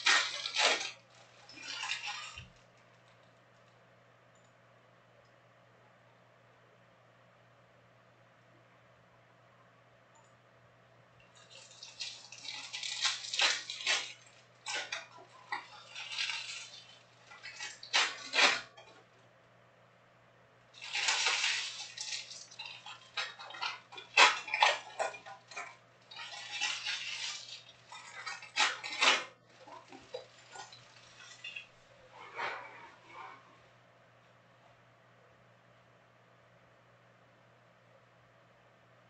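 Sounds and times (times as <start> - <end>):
foil wrappers crinkling: 0.0 - 3.2, 11.4 - 18.9, 20.8 - 31.8.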